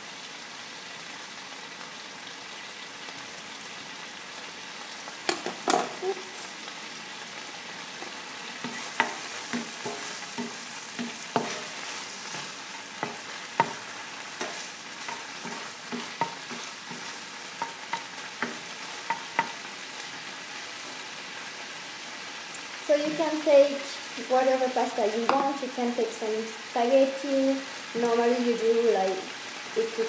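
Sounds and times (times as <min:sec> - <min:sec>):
bacon sizzling in a frying pan: 0:00.0 - 0:30.0
spatula knocking against pan: 0:08.0 - 0:19.6.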